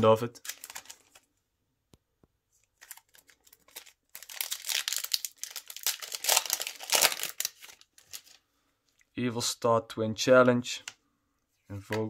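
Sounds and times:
foil wrapper crinkling and tearing: 0.4s - 1.2s, 2.8s - 8.4s.

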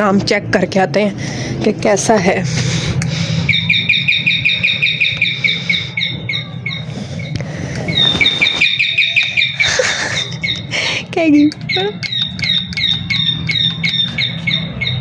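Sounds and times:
electronic doorbell bird chirps: 3.5s - 6.9s, 7.9s - 9.8s, 11.6s - 15.0s.

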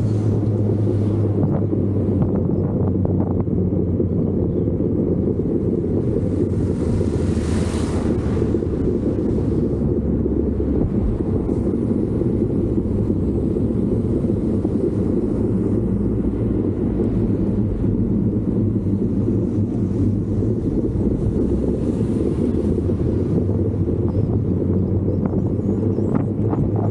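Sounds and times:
engine droning: 0.0s - 26.9s
wind buffeting microphone: 0.0s - 26.9s.

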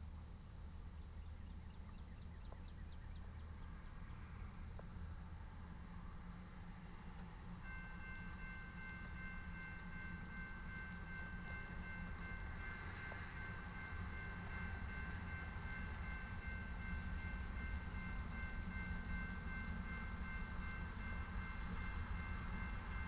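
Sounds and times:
crossing warning bell ringing: 7.6s - 23.0s.

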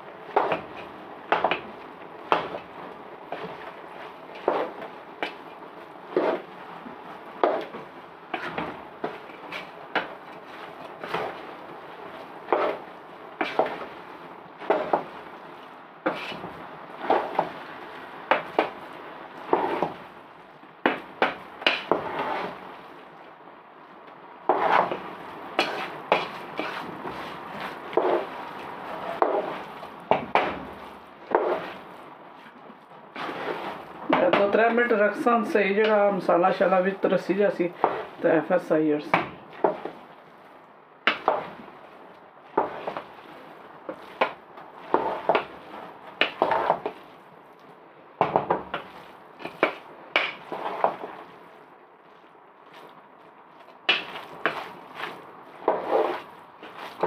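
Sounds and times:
utensil scraping cooking pot: 0.3s - 6.6s, 7.4s - 15.2s, 16.0s - 20.0s, 20.9s - 22.7s, 24.5s - 32.0s, 33.2s - 36.2s, 36.8s - 38.2s, 41.1s - 47.1s, 48.4s - 51.4s, 53.6s - 57.0s.

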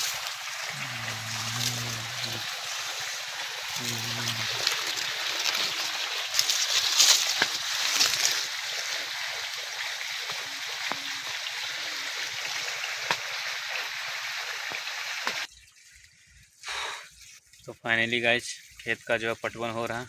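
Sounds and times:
rush of running water: 0.0s - 15.5s.

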